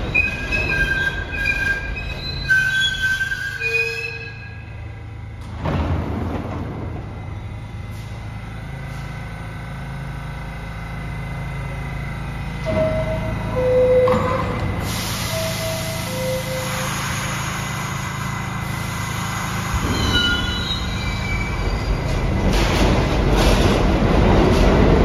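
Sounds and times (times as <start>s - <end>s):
subway train humming: 0.0s - 25.0s
air hiss: 14.8s - 19.8s.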